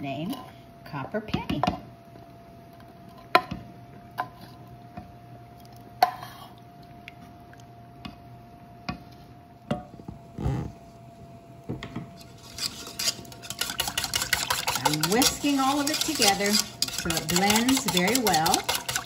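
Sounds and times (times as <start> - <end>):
faint steady hum: 0.0 - 19.0
scrape on a saucepan: 12.2 - 19.0
can and whisk clicking on a saucepan: 13.4 - 19.0.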